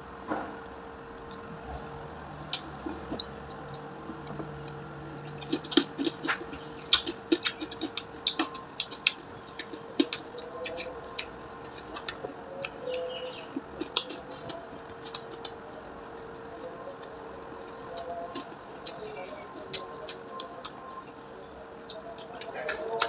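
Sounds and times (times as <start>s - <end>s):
faint steady hum: 0.0s - 23.0s
crispy pork crackling breaking: 2.4s - 4.8s.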